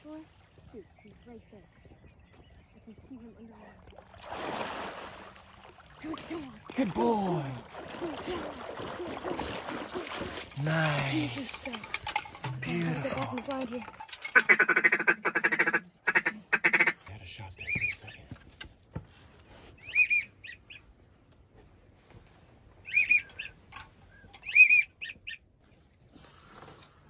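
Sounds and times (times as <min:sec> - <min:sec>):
harsh waterfowl calls: 0:14.2 - 0:17.0, 0:19.8 - 0:20.8, 0:22.8 - 0:25.4
falling whistled bird calls: 0:22.9 - 0:25.2.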